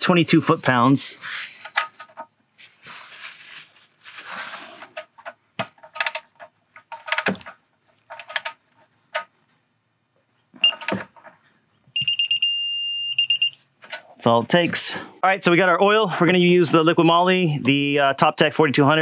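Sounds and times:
short electronic beep: 0:12.0 - 0:13.6.

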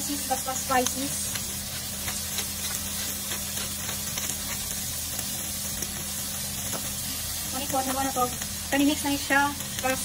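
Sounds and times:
vegetables sizzling in a frying pan: 0:00.0 - 0:10.0.

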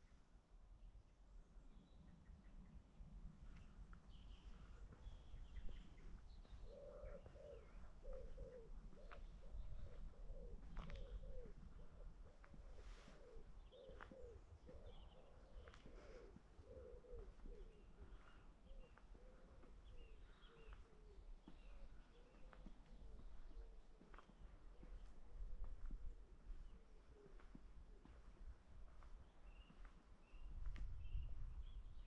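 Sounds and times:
small birds chirping: 0:03.4 - 0:32.0
low cooing bird calls: 0:03.6 - 0:32.0.

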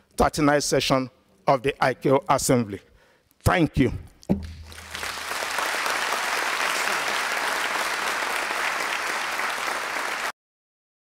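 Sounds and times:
audience applauding: 0:04.6 - 0:10.4.

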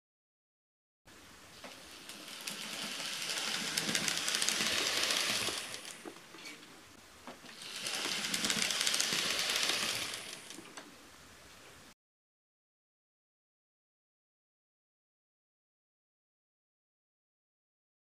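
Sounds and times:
model train wheels clattering: 0:01.6 - 0:06.7, 0:07.4 - 0:10.9
small electric motor whir: 0:01.8 - 0:06.2, 0:07.5 - 0:10.8.

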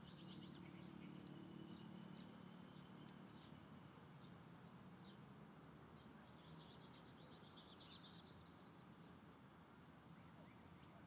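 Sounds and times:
songbird twittering: 0:00.0 - 0:05.2, 0:06.0 - 0:11.0
low steady background hiss: 0:00.0 - 0:11.0.

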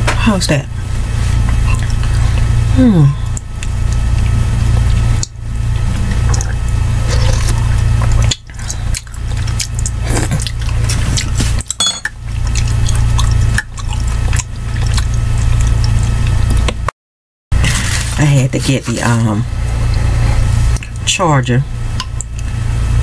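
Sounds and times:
steady low hum: 0:00.0 - 0:16.9, 0:17.6 - 0:23.0
sipping and slurping: 0:01.1 - 0:16.7
chewing: 0:03.2 - 0:16.7
metal spoon clinking in mug: 0:11.8 - 0:12.1.

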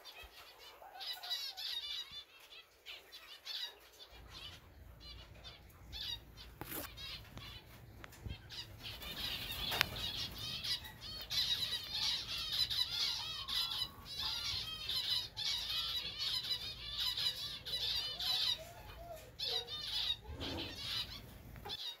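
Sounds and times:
finches chirping: 0:00.0 - 0:22.0
wings fluttering: 0:06.4 - 0:11.7.

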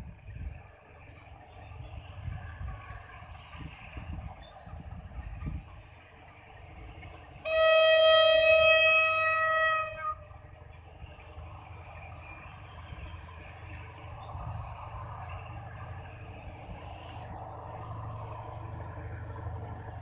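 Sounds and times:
low steady rumble: 0:00.0 - 0:20.0
locomotive horn blast: 0:07.4 - 0:10.4.

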